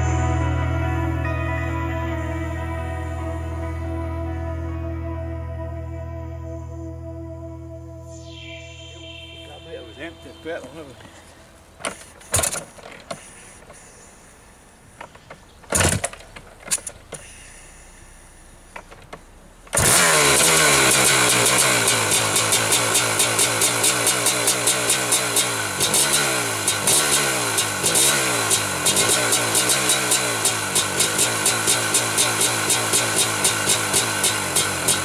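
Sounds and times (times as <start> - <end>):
sharp knocks of kickstart: 11.8 - 13.8, 15.0 - 17.5, 18.7 - 35.0
dirt bike engine revving: 19.7 - 35.0.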